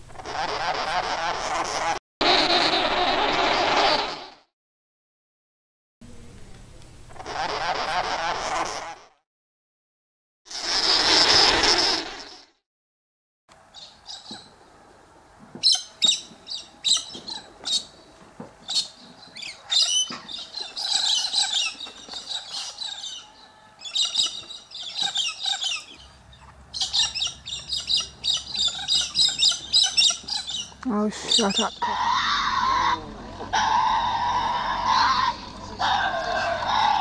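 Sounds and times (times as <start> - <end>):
parrots chirping and squawking: 0.1 - 2.0, 7.2 - 9.1, 10.5 - 12.4, 15.6 - 18.0, 18.6 - 37.0.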